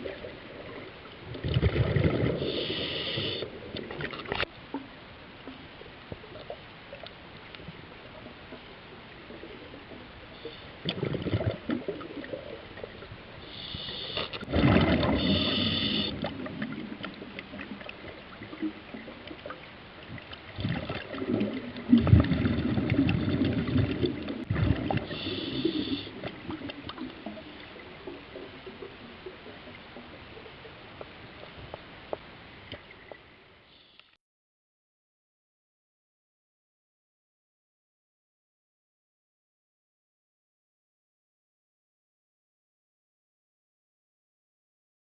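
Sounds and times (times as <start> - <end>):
underwater rumbling and gurgling: 0.0 - 33.5.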